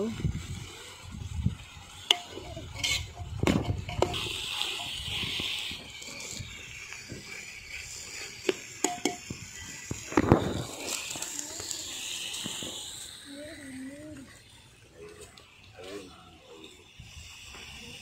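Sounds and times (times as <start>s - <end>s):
spoon stirring onions in a pot: 2.0s - 6.4s, 7.3s - 9.4s
spoon clinking against pot: 8.8s - 9.2s.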